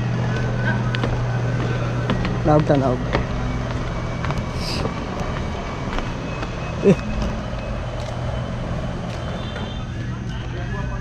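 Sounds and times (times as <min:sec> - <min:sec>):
motor humming: 0:00.0 - 0:10.5.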